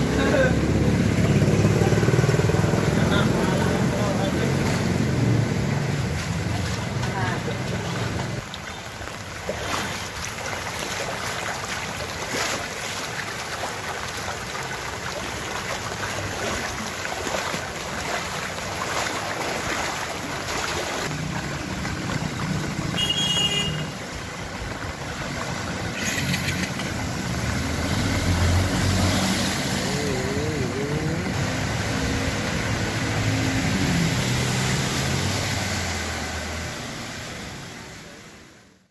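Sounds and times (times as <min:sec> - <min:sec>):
motorcycle and car engines: 0:00.0 - 0:08.4, 0:21.0 - 0:38.8
floodwater rushing and splashing: 0:00.0 - 0:38.9.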